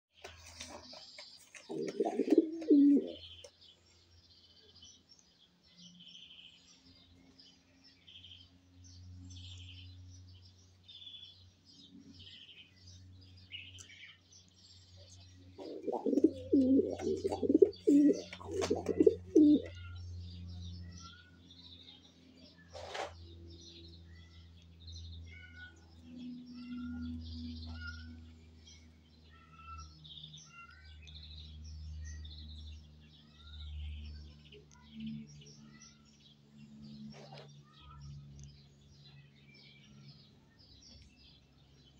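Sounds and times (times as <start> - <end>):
steady low hum: 7.0 - 29.6
chicks cheeping: 15.6 - 19.9.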